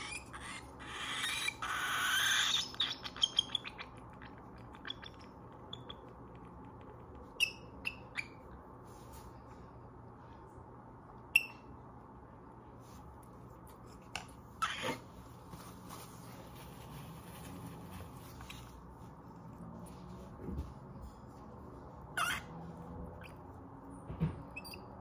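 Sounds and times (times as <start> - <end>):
baby cockatiel begging calls: 0.0 - 3.9, 22.2 - 22.5
cockatiel chirps: 0.0 - 6.1, 7.3 - 8.5, 11.4 - 11.7, 22.2 - 22.5, 24.5 - 25.0.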